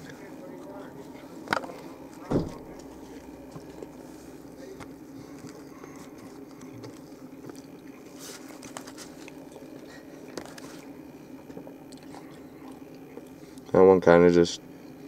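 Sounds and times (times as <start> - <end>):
steady low hum: 0.0 - 15.0
person chewing: 5.3 - 13.7
small mouth clicks: 11.9 - 13.7.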